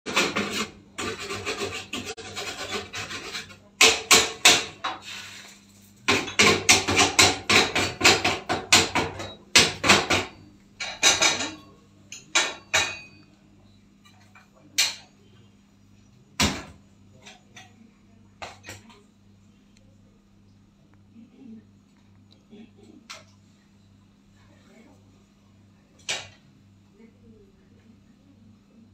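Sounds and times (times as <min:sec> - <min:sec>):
metal tool scraping: 0:00.1 - 0:03.7
metal tool knocking: 0:06.1 - 0:13.2.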